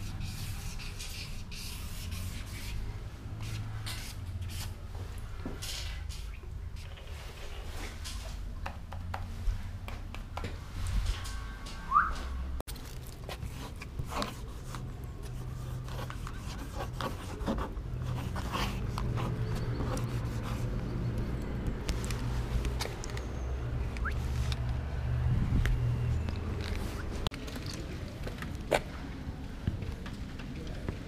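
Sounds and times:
marker scratching on a wall: 0:00.0 - 0:04.8, 0:13.3 - 0:21.1.

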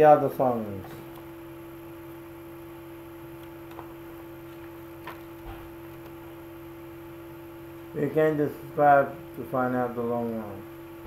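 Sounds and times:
mains hum: 0:00.0 - 0:11.0.

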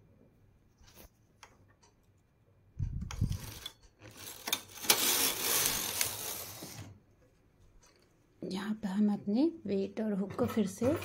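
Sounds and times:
knitting machine carriage sliding: 0:03.2 - 0:06.9.

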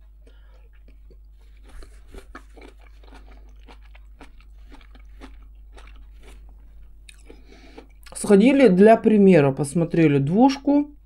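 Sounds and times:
person chewing food: 0:00.0 - 0:08.2.

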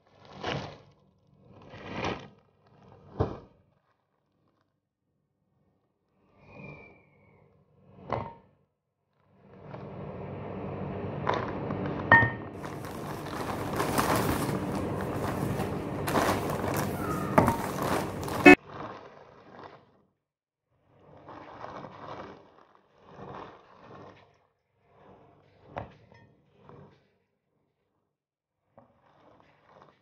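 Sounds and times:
plastic bag rustling: 0:12.6 - 0:19.8.

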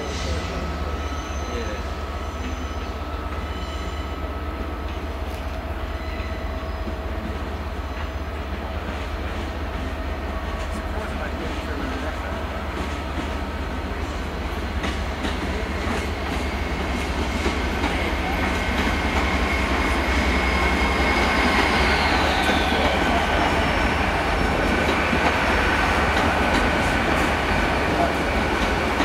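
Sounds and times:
train rumble: 0:00.0 - 0:29.0
traction equipment whines: 0:17.6 - 0:26.6.

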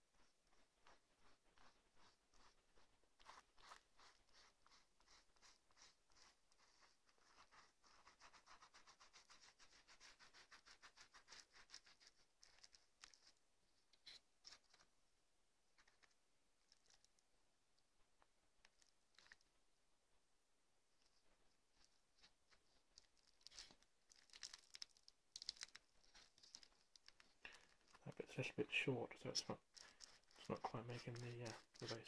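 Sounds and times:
fingers rubbing wet plaster cloth: 0:00.0 - 0:13.4, 0:21.0 - 0:32.0.

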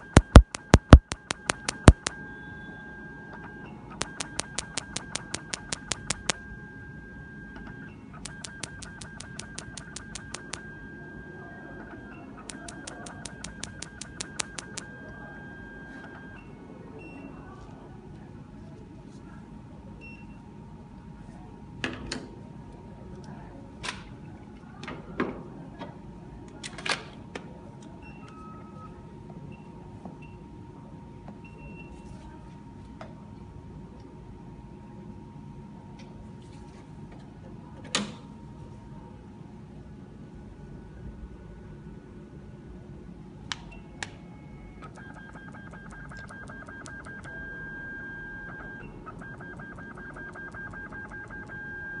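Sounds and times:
short electronic beeps: 0:00.0 - 0:02.9, 0:04.0 - 0:06.4, 0:07.7 - 0:10.8, 0:12.5 - 0:16.3
machine beeping with clicks: 0:00.0 - 0:17.6, 0:43.6 - 0:52.0.

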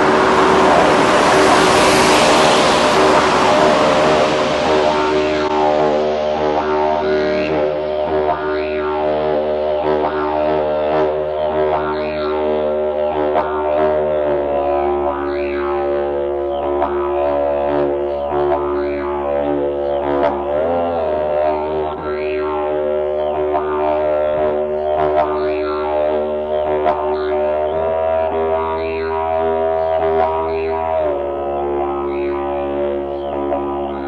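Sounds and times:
didgeridoo drone: 0:00.0 - 0:34.0.

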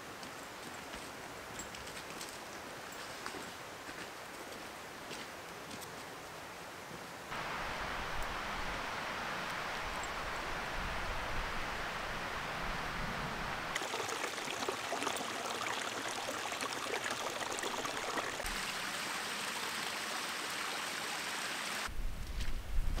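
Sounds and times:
stream running over stones: 0:07.3 - 0:12.3, 0:13.7 - 0:21.9.

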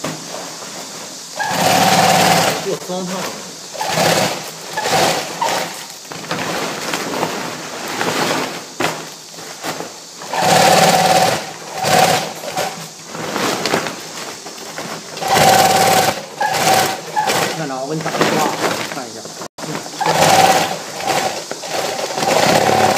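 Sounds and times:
sewing machine stitching: 0:01.4 - 0:03.1, 0:03.7 - 0:05.9, 0:10.2 - 0:13.6, 0:15.2 - 0:18.7, 0:20.0 - 0:22.9.

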